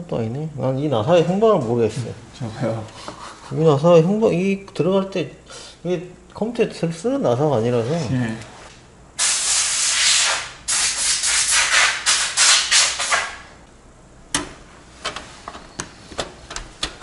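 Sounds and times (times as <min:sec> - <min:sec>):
air blower hissing: 0:09.2 - 0:13.5.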